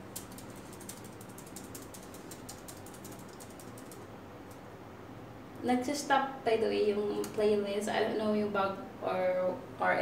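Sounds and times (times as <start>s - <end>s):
laptop keys clicking: 0.1s - 4.1s.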